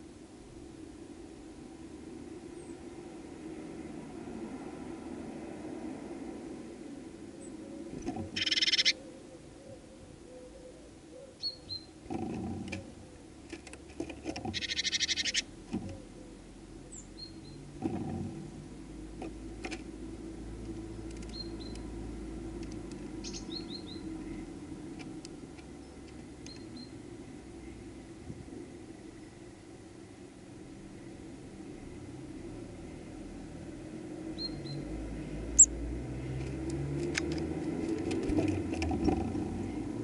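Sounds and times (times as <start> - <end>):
songbird chirps: 7.4 - 12.4, 14.4 - 17.7, 21.0 - 28.0, 34.2 - 36.9
bird chattering calls: 8.4 - 9.0, 14.6 - 15.5.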